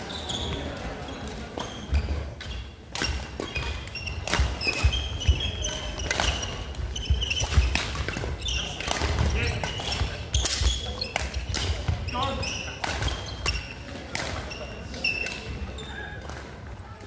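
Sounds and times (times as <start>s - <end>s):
court shoes squeaking: 0.0s - 17.0s
racket hitting shuttlecock: 1.6s - 12.0s, 12.7s - 14.5s.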